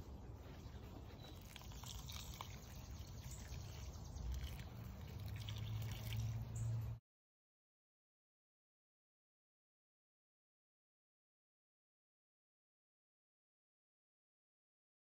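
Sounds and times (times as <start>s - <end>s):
hands rustling in a pot: 0.0s - 7.0s
water poured onto soil: 1.3s - 6.8s.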